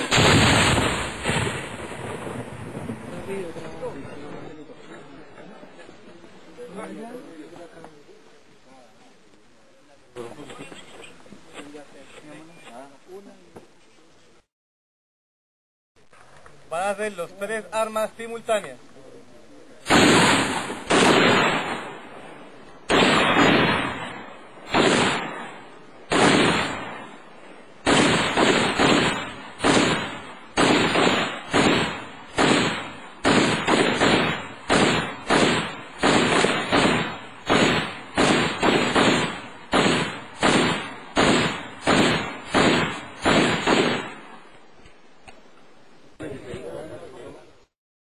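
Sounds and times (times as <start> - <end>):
gunfire reports: 0.0 - 3.6, 19.8 - 44.5.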